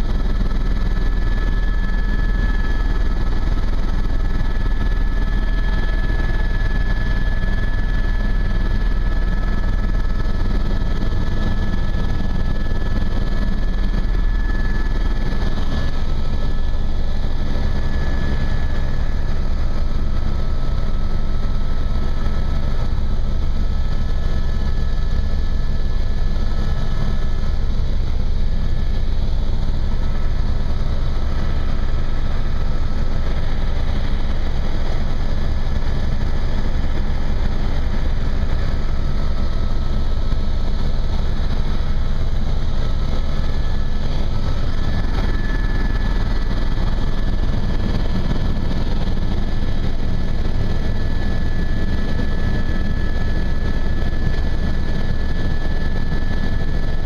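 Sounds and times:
faint high whine: 0.0 - 57.0
helicopter cabin drone: 0.0 - 57.0.

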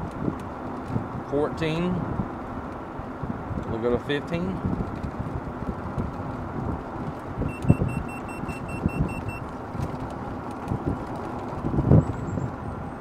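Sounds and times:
wind and road noise: 0.0 - 13.0
rapid high beeps: 7.5 - 9.4.

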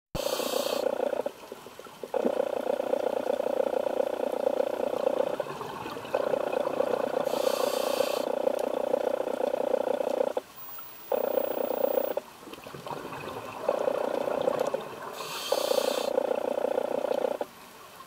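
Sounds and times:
regulator inhalation hiss: 0.2 - 0.9, 7.2 - 8.3, 15.2 - 16.1.

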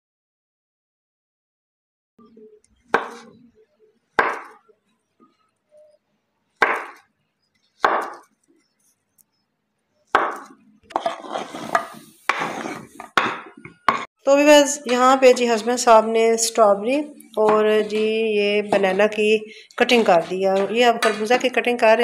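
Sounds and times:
knife chopping on cutting board: 2.9 - 3.3, 4.2 - 4.6, 6.6 - 7.0, 7.8 - 8.3, 10.1 - 14.1, 19.8 - 21.6.

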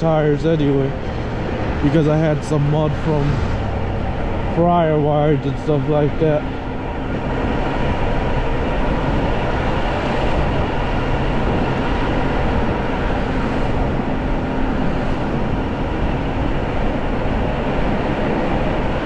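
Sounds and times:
electric bike rushing rumble: 0.0 - 19.0.

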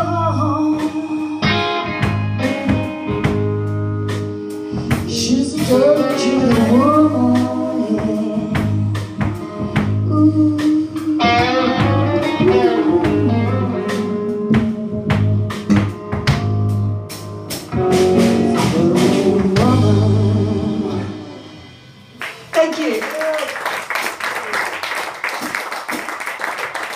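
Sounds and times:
woman singing: 0.0 - 1.7, 5.0 - 9.4, 10.0 - 15.2, 18.4 - 21.3
bass guitar: 0.0 - 22.4
electric guitar: 0.0 - 22.5
drums: 0.0 - 23.3.

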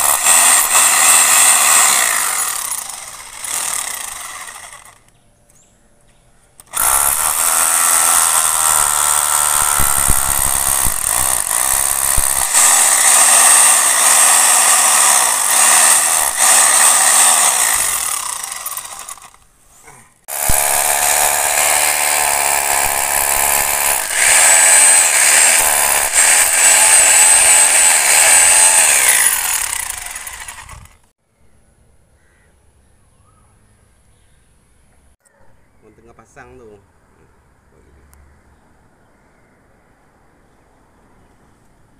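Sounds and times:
hammer drill boring into concrete: 0.0 - 5.0, 6.6 - 19.4, 20.3 - 31.1.

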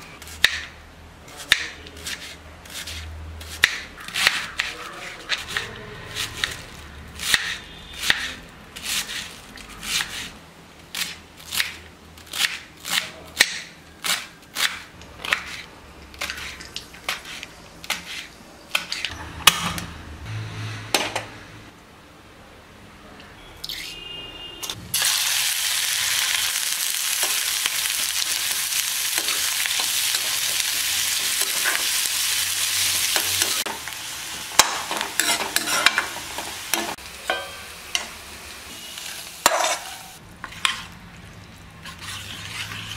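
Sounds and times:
knife slicing cabbage on board: 1.4 - 6.6, 10.9 - 19.1
vegetables sizzling in oil: 24.9 - 40.9.

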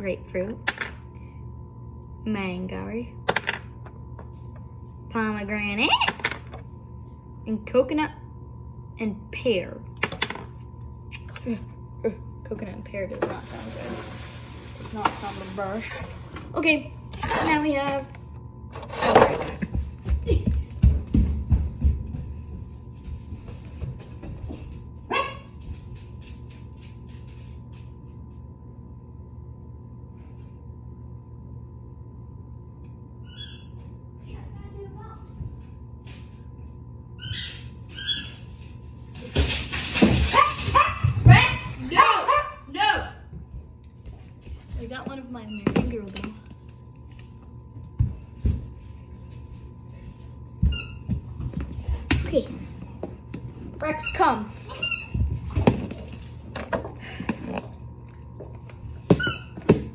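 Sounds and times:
low steady hum: 0.0 - 59.9
dog barking: 41.9 - 42.7.

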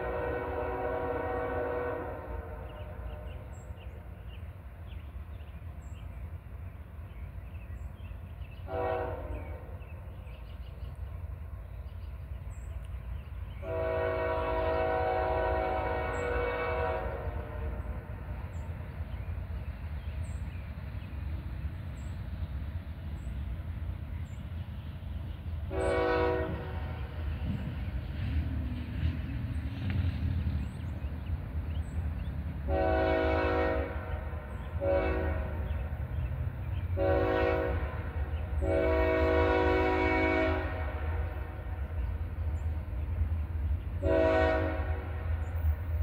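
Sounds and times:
locomotive horn blasts: 0.0 - 3.4, 8.6 - 9.8, 13.6 - 18.3, 25.7 - 27.3, 32.7 - 35.9, 36.9 - 41.8, 44.0 - 45.3.

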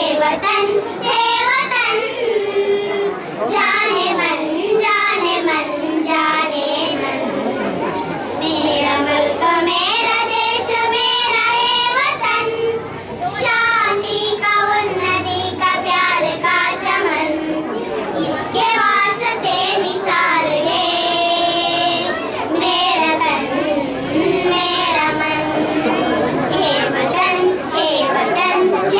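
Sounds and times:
girls singing into a microphone: 0.0 - 28.9.

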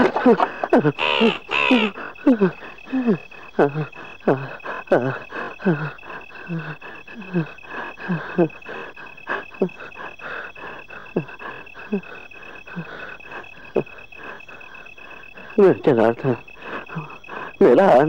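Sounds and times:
short falling calls: 0.0 - 3.2
crickets chirring: 0.0 - 18.0.

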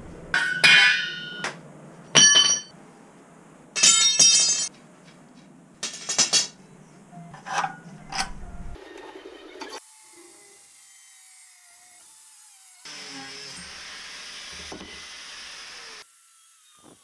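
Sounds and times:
steel bars clanking on concrete: 0.4 - 2.7, 3.8 - 4.7, 5.8 - 6.6.

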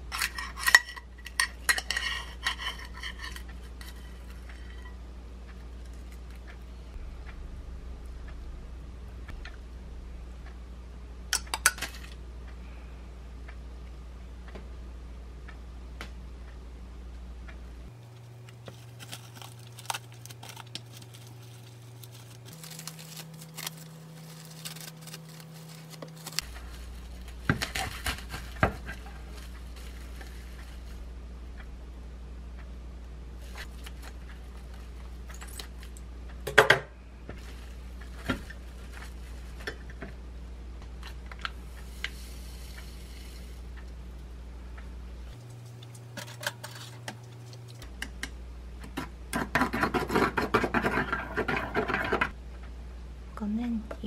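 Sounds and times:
steady low hum: 0.0 - 54.0
plastic wrap rustling: 18.1 - 31.1, 33.4 - 36.0, 37.4 - 40.0.

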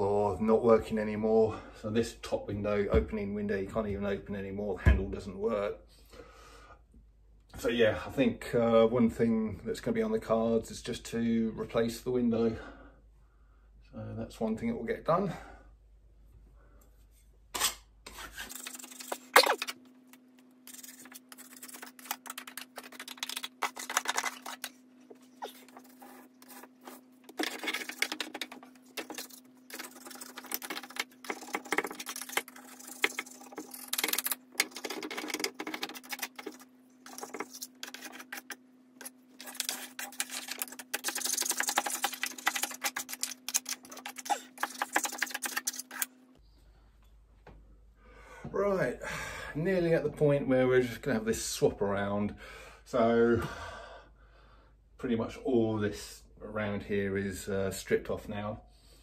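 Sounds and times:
scraper scratching wallpaper: 18.1 - 19.7, 20.6 - 46.1.

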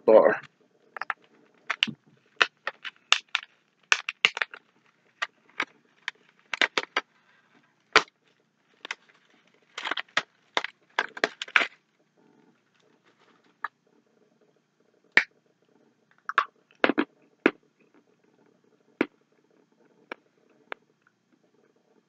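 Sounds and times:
candy wrapper crinkling: 1.0 - 8.1, 8.7 - 11.8.

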